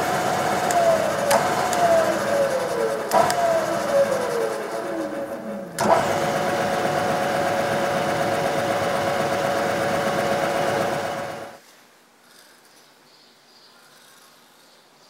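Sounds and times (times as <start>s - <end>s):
milling machine drilling metal: 0.0s - 11.6s.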